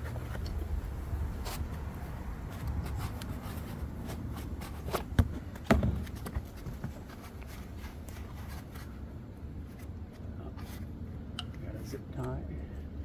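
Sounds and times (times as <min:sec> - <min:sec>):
rustling foam and plastic packing: 0:00.0 - 0:11.0
sharp knocks: 0:05.1 - 0:06.9.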